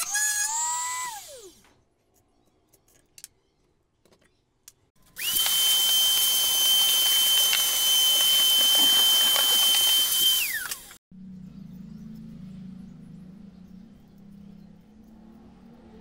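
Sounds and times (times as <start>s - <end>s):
rotary tool high whine: 5.0s - 11.0s.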